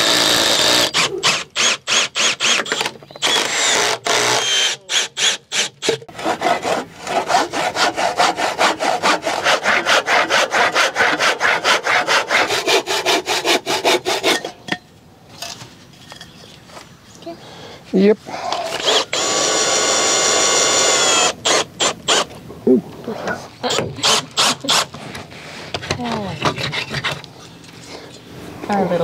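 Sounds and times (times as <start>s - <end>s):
hand saw cutting wood: 0.0s - 14.6s, 23.7s - 25.2s, 26.1s - 27.3s.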